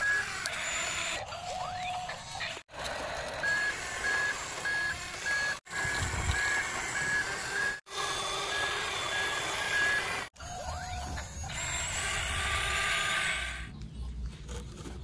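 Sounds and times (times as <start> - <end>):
reversing alarm beeps: 3.4 - 7.8, 8.4 - 11.5.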